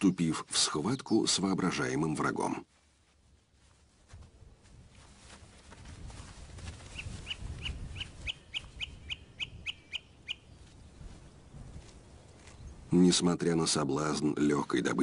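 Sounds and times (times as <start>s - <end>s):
bird calls: 6.9s - 11.5s.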